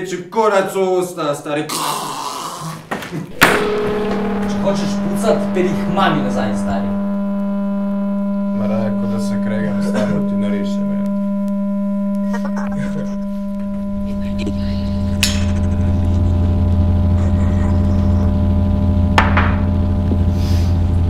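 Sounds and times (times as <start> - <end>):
deeper hum: 3.3 - 21.0
low drone with overtones: 3.3 - 21.0
sharp hits with ringing tail: 3.4 - 6.9.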